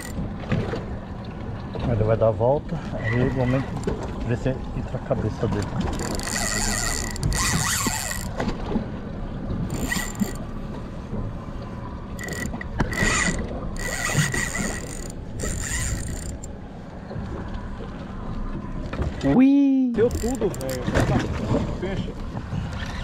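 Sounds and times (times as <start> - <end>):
fishing reel whirring: 0.0 - 0.2, 5.8 - 8.4, 9.7 - 10.5, 12.1 - 16.6, 20.0 - 21.0.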